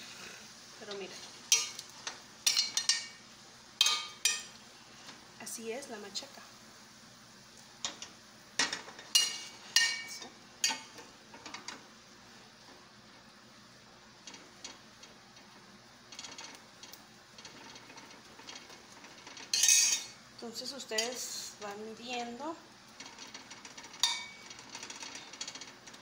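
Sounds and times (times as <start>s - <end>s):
metal spatula scraping skillet: 8.6s - 11.8s, 17.4s - 20.2s, 23.0s - 26.0s.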